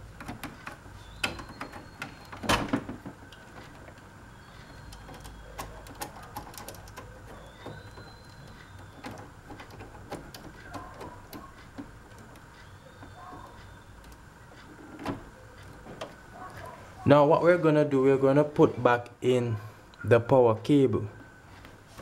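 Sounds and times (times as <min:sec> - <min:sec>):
clicks and knocks of computer parts: 0:00.2 - 0:04.0, 0:04.8 - 0:14.2.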